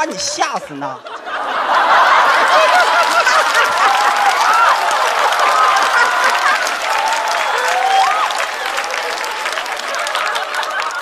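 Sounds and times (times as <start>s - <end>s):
audience laughing: 0.0s - 11.0s
audience applauding: 1.6s - 11.0s.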